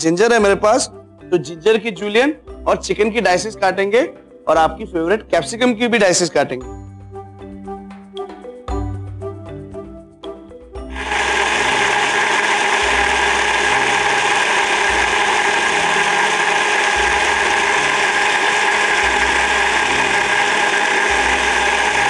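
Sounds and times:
electric mixer grinder running: 10.9s - 22.0s.

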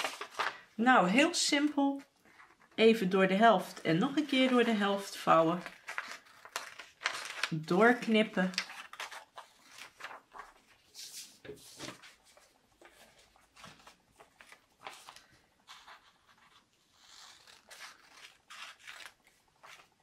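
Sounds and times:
paper rustling: 0.0s - 0.7s, 2.2s - 2.9s, 3.9s - 20.0s
scissors snipping paper: 16.9s - 20.0s.

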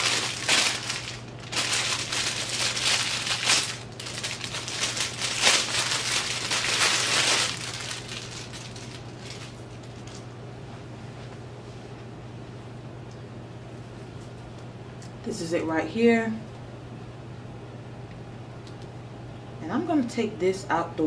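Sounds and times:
plastic packaging crinkling: 0.0s - 10.3s.

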